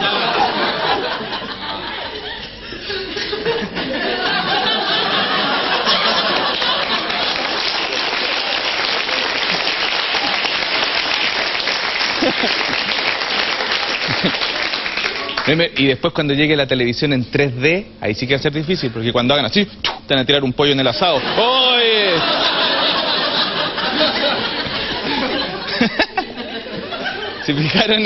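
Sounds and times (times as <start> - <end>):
audience laughing: 0.0 - 15.4, 21.0 - 28.0
sustained applause: 5.6 - 15.6.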